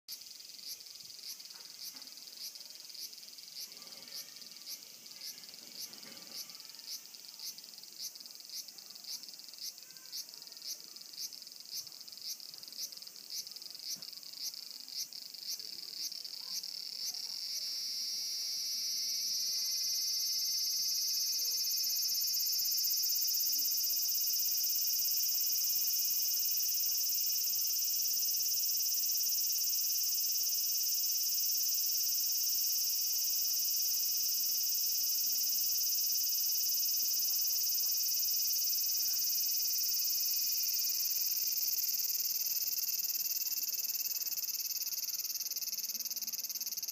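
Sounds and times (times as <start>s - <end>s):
cicada buzzing: 11.2s - 46.9s.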